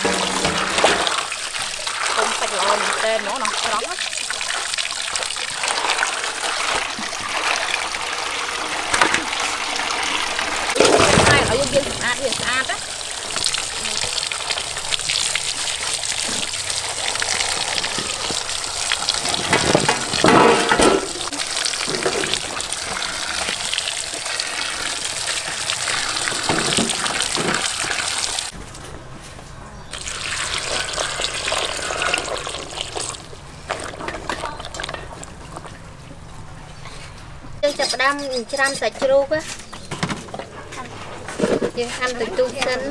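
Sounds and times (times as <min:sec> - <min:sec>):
hands scrubbing vegetables: 0:00.0 - 0:28.5
water pouring into metal basin: 0:00.0 - 0:28.5, 0:29.9 - 0:35.6.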